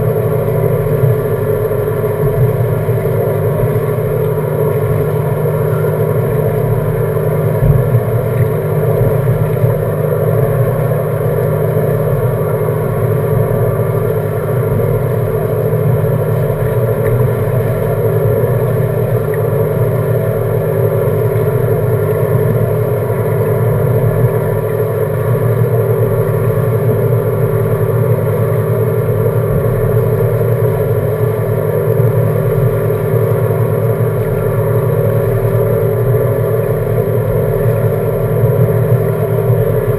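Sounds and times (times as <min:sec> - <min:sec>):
outboard engine idling: 0:00.0 - 0:39.9.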